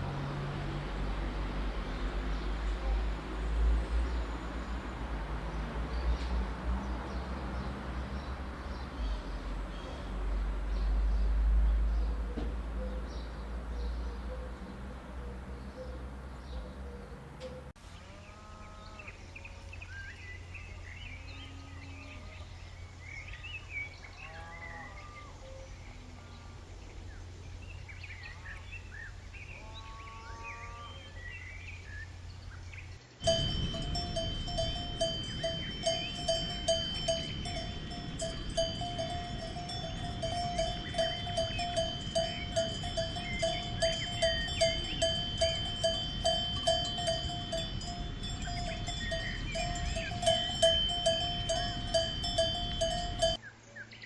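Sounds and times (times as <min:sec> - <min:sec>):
birds chirping: 0:00.0 - 0:54.0
cowbell clanking: 0:33.2 - 0:53.4
steady low hum: 0:33.2 - 0:53.4.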